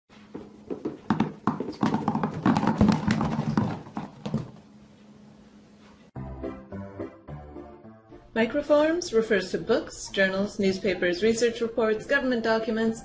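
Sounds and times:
apples bouncing on hard surface: 0.4s - 4.6s
music: 6.2s - 13.0s.

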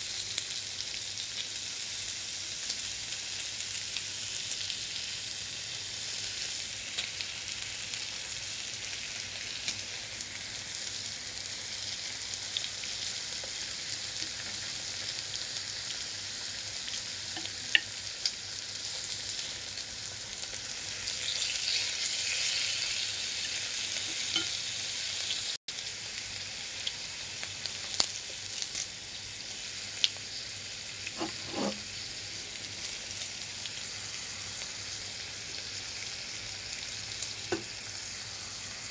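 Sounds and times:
meat sizzling on grill: 0.0s - 38.9s
chopsticks clicking on grill: 24.1s - 24.6s.

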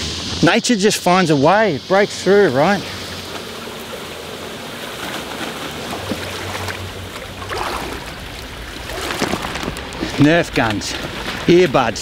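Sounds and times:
person wading through water: 3.0s - 12.0s.

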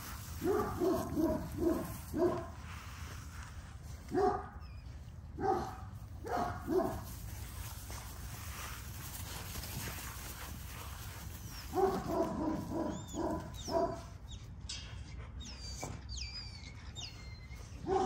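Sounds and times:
dog barking: 0.4s - 2.5s, 4.1s - 4.5s, 5.4s - 7.0s, 11.7s - 14.0s.

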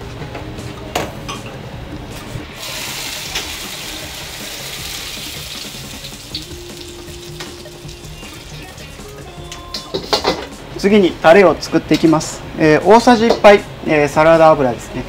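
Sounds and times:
hot oil pouring through strainer: 2.6s - 7.1s
beans frying in oil: 2.6s - 9.3s
ladle knocking on wok: 9.7s - 10.6s, 13.2s - 13.5s.

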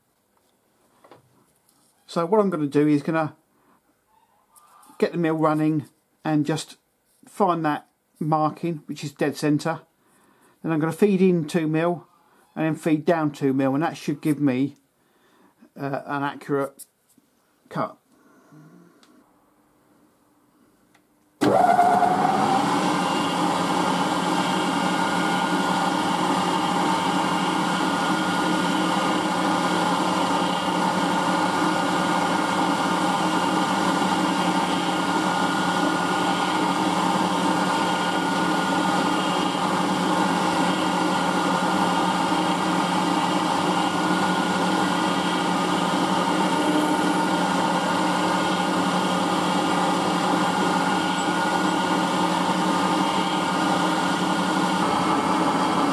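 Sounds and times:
end mill cutting steel: 21.4s - 55.9s
milling machine running: 21.4s - 55.9s.

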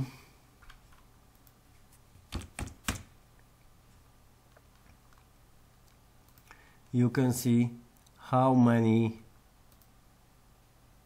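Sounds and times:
keyboard keystrokes: 2.3s - 3.1s.

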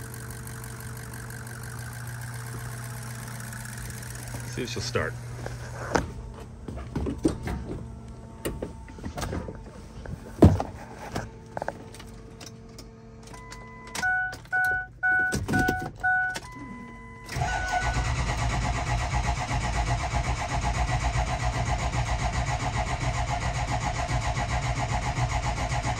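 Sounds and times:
diesel engine starter cranking: 0.0s - 6.0s, 11.8s - 25.9s
dashboard chime beeping: 13.4s - 17.3s.

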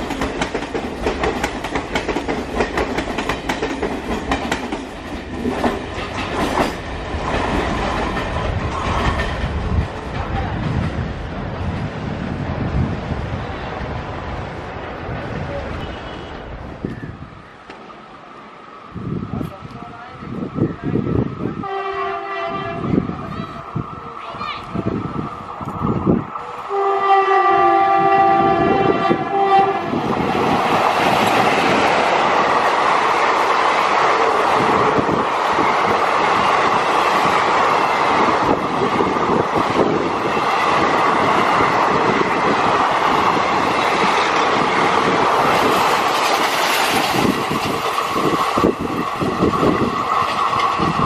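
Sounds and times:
train coaches rumbling: 0.0s - 51.0s
train horn: 15.8s - 16.4s, 21.6s - 23.6s, 26.4s - 30.1s
wheels clattering over rails: 42.0s - 51.0s.

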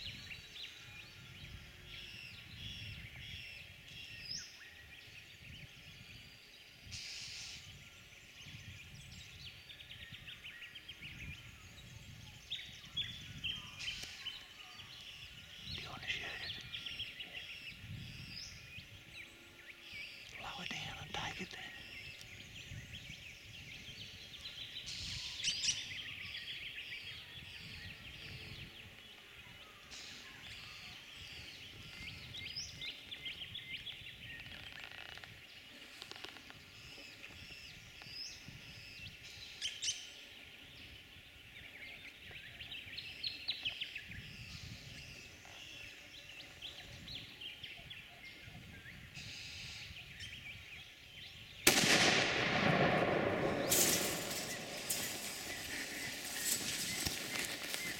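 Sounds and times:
small birds chirping: 0.0s - 57.9s
loud gunshot: 51.6s - 56.5s.

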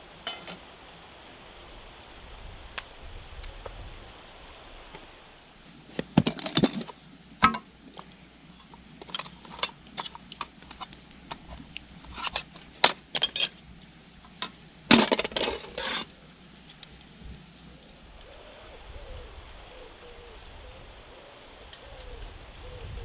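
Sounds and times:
metal tin and lid clattering: 8.6s - 13.6s, 14.3s - 16.1s
utensil scraping in tin: 14.3s - 16.1s.

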